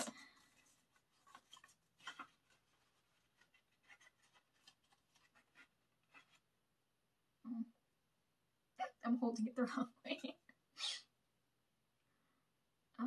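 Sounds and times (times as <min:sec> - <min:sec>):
cardboard and paper rustling: 0:00.0 - 0:06.5.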